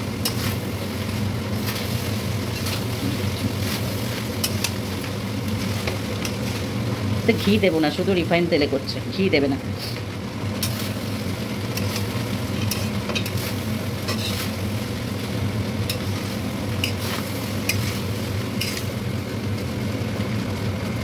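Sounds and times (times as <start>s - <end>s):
oil sizzling: 0.0s - 21.0s
steady low hum: 0.0s - 21.0s
metal spatula scraping a pan: 0.2s - 6.7s, 10.6s - 11.1s, 11.7s - 14.8s, 15.8s - 18.9s.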